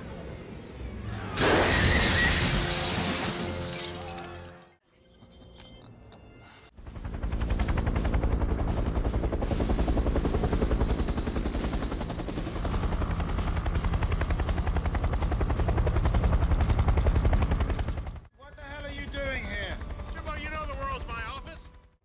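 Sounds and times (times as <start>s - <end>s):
turbine drone: 5.7s - 18.3s
helicopter rotor blades thumping: 6.8s - 20.8s.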